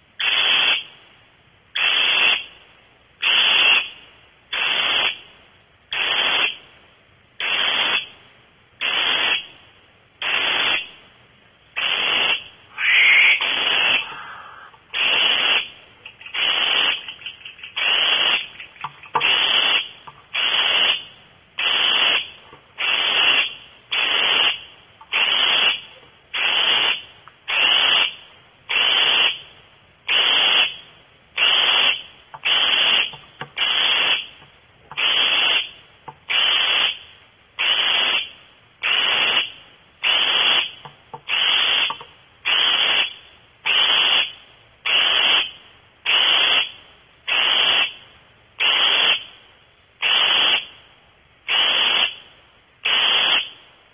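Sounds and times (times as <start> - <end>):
owl rasping hisses: 11.8 - 21.0, 21.6 - 25.8, 36.3 - 37.0, 41.3 - 41.9.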